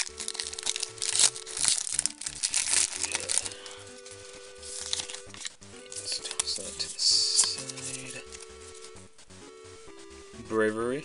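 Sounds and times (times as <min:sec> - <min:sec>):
foil wrapper crinkling: 0:00.0 - 0:09.0.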